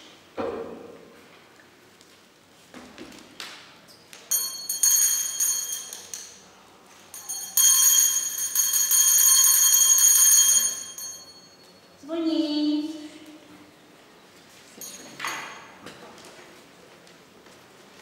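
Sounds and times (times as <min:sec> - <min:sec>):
school bell ringing: 0:04.3 - 0:06.4, 0:07.1 - 0:12.3, 0:14.8 - 0:15.8.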